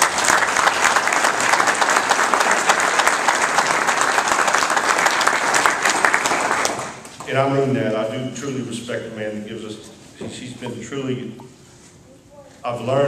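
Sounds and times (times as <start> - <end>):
audience applause: 0.0 - 7.0.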